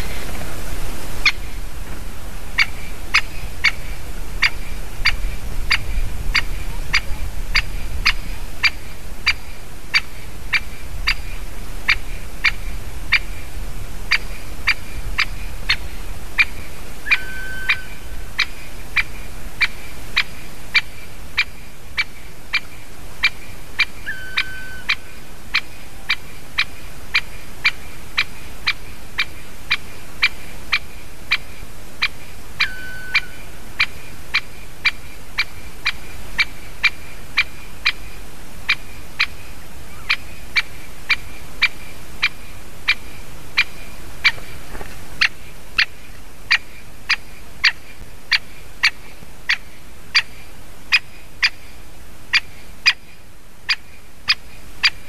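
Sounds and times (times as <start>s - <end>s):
woodpecker sharp kik calls: 14.1s - 31.4s, 32.0s - 38.0s, 38.7s - 51.7s, 52.3s - 55.0s.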